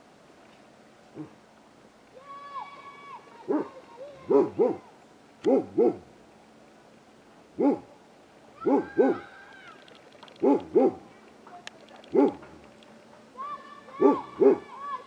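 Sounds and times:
hoot-like animal calls: 0:08.6 - 0:11.0.

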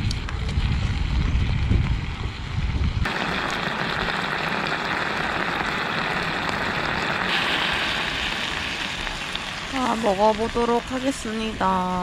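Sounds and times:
meat sizzling in a pan: 0:03.1 - 0:12.0.

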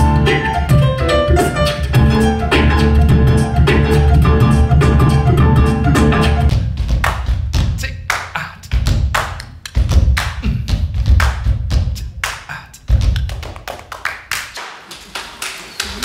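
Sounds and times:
piano: 0:00.0 - 0:06.7
deep bass thumps: 0:01.9 - 0:07.8
person beatboxing: 0:07.6 - 0:16.0.

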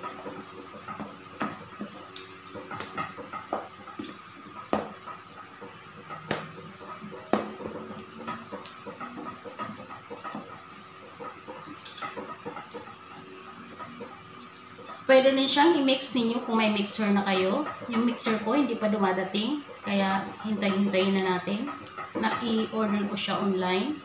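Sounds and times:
utensil knocking on steel bowl: 0:01.0 - 0:05.0, 0:06.2 - 0:10.5.

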